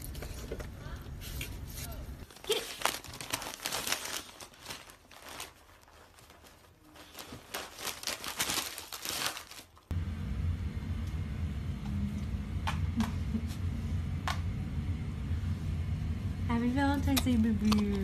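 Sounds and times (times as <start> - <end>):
wrapping paper crinkling and tearing: 2.2 - 9.9.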